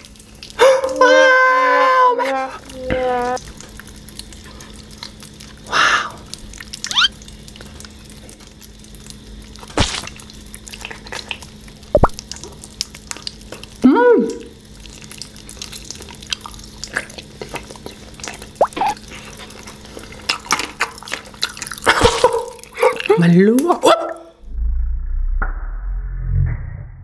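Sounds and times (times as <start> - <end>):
wet eating mouth sounds: 4.2 - 8.0, 9.1 - 23.2.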